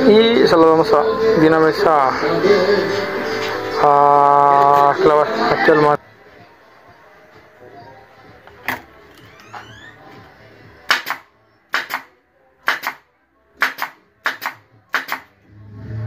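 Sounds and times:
hammer driving nails into wood: 0:10.9 - 0:13.0, 0:13.6 - 0:15.3.

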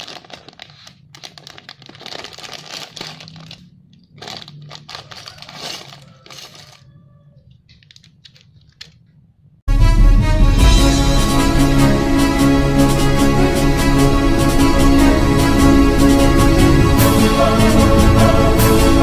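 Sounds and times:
plastic bricks rattling: 0:00.0 - 0:06.9
plastic bag crinkling: 0:00.0 - 0:09.2
plastic pieces clicking on table: 0:07.6 - 0:09.1.

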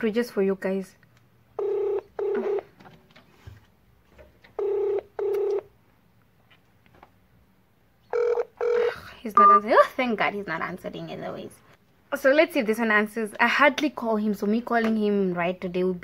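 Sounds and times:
telephone ringback tone: 0:01.6 - 0:02.7, 0:04.6 - 0:05.7, 0:08.1 - 0:09.5.

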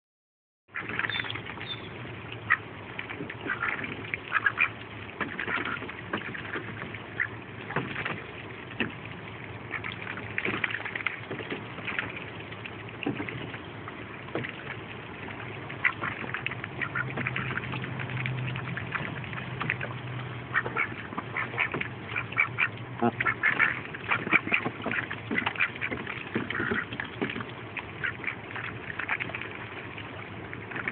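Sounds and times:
duck bills dabbling in water: 0:00.7 - 0:30.9
soft duck quacks: 0:03.5 - 0:04.8, 0:16.8 - 0:17.7, 0:20.5 - 0:26.9.

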